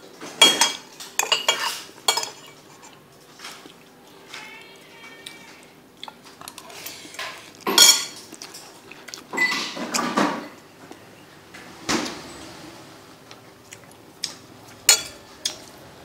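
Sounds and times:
spoon clicking on ceramic plates: 14.9 - 15.7.

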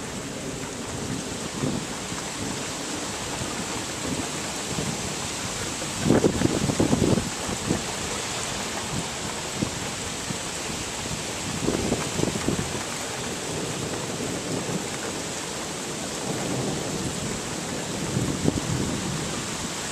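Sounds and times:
thunder rumble: 0.0 - 8.1, 11.0 - 19.9
rain hissing: 0.0 - 19.9.

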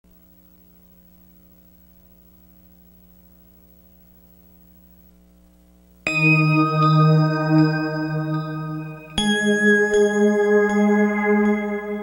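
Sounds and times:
electrical mains hum: 0.1 - 12.0.

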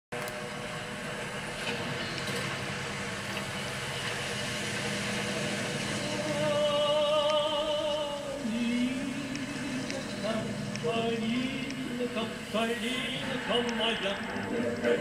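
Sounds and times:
boat engine running: 0.4 - 15.0
person singing with vibrato: 6.0 - 15.0.

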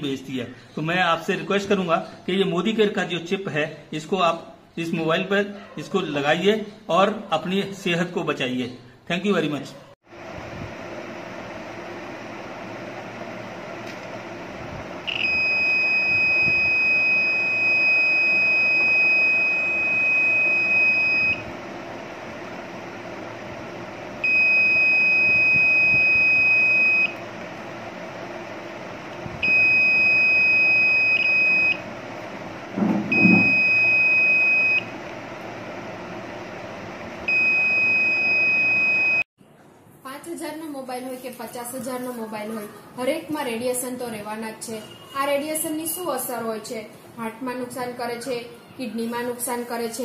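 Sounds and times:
meter buzzer high steady beep: 15.0 - 21.4, 24.2 - 27.2, 29.4 - 31.8, 33.1 - 34.9, 37.3 - 39.3.

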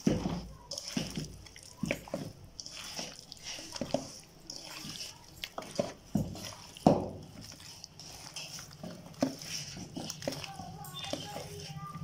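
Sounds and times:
wet squelching: 0.0 - 12.0.

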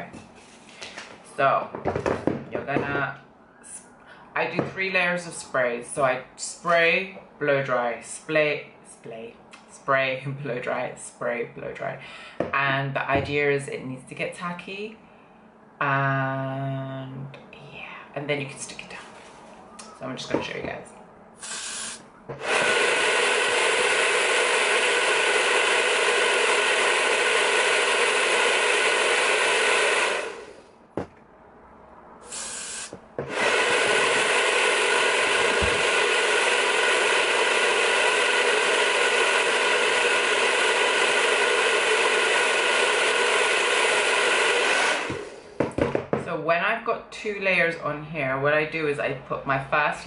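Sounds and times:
aerosol spray hiss: 21.4 - 30.6, 32.3 - 45.5
hair dryer running: 21.4 - 30.6, 32.3 - 45.7.

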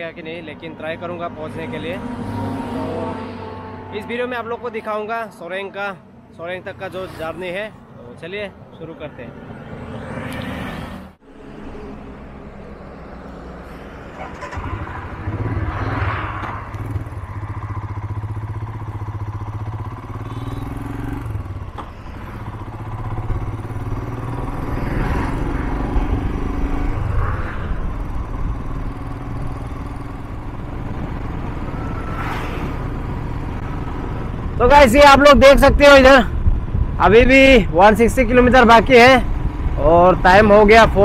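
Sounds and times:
passing vehicles: 0.0 - 41.0
trucks passing close: 0.0 - 41.0
wind and road noise: 0.0 - 41.0
motorcycle engine running: 14.1 - 32.2.

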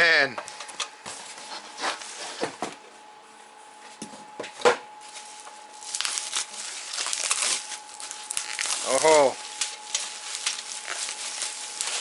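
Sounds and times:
faint steady high hum: 0.0 - 12.0
bubble wrap rustling: 5.0 - 12.0.

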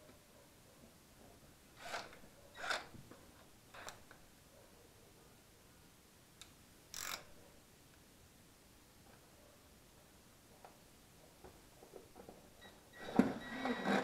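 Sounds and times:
hand tool scraping: 13.0 - 14.0.

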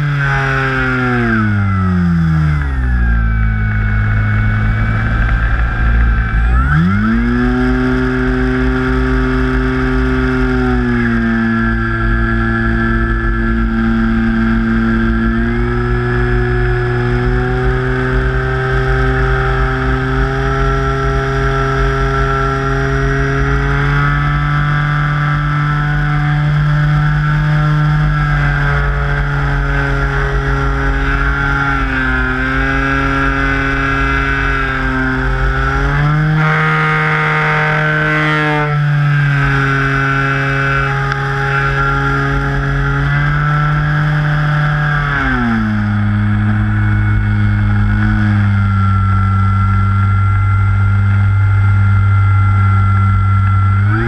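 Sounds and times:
model plane motor whine: 0.0 - 54.0
wind rumble on microphone: 0.0 - 54.0.

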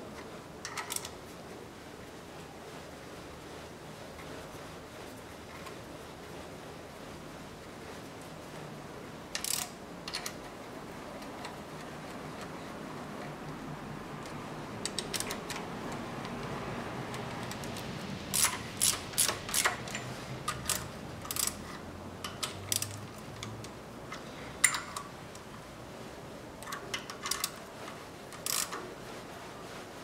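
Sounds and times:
ratchet wrench clicking: 9.4 - 10.4, 17.4 - 23.5, 28.4 - 28.8.

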